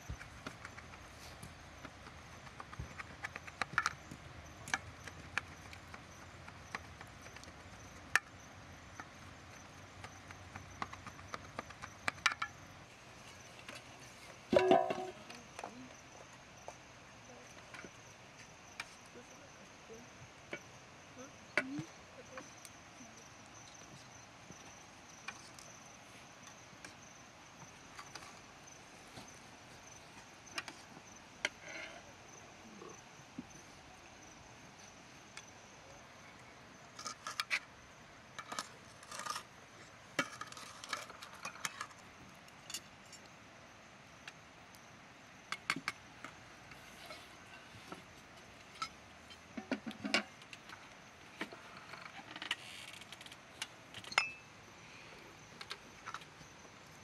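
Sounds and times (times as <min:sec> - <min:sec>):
insect chirping: 0:00.0 - 0:57.0
dishes clattering: 0:14.5 - 0:15.2
metal spoons clinking on plates: 0:54.1 - 0:54.4.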